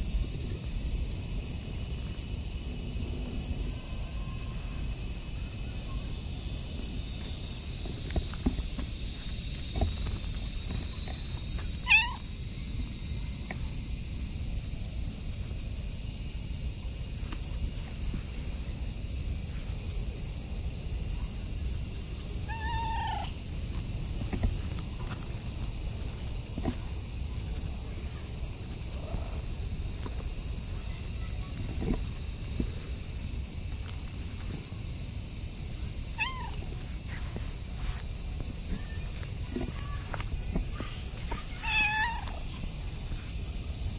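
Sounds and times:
high insect buzz: 0:04.8 - 0:19.8, 0:21.0 - 0:43.9
cat meowing: 0:11.8 - 0:12.2, 0:22.5 - 0:23.3, 0:36.2 - 0:36.6, 0:41.6 - 0:42.4.

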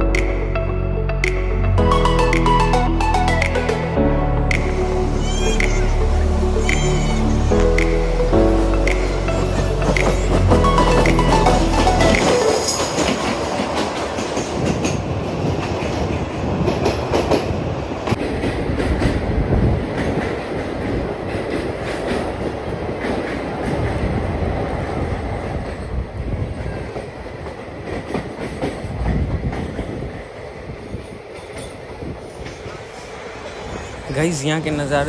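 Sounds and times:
train rumbling through tunnel: 0:00.0 - 0:35.0.

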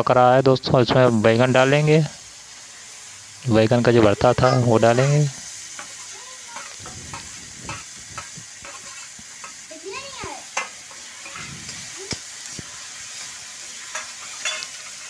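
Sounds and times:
vegetables sizzling in oil: 0:00.0 - 0:15.0
spoon scraping steel plate and wok: 0:04.2 - 0:09.6, 0:10.5 - 0:12.2, 0:13.2 - 0:15.0.

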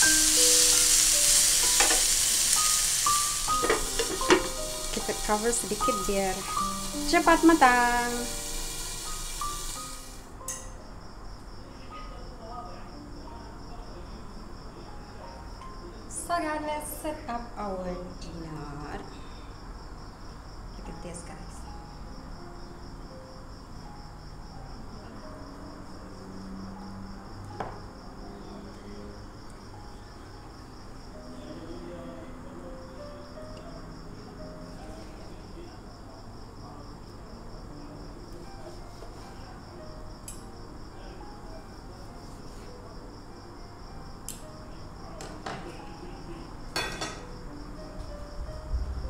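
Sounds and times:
cricket chirping: 0:00.0 - 0:49.0
cutlery tapping on wooden board: 0:01.7 - 0:02.0, 0:03.6 - 0:04.6.

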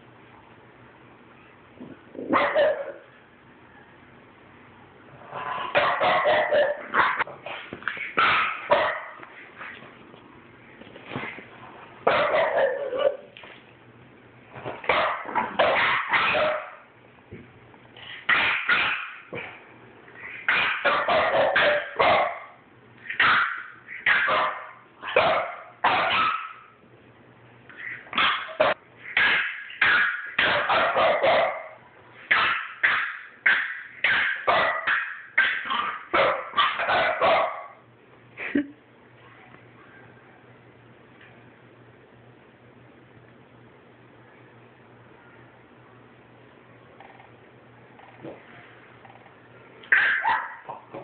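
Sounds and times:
dogs barking: 0:02.2 - 0:03.2, 0:05.3 - 0:09.8, 0:12.0 - 0:13.4, 0:14.8 - 0:16.9, 0:18.2 - 0:19.6, 0:20.2 - 0:26.8, 0:27.7 - 0:37.9, 0:49.9 - 0:51.0.

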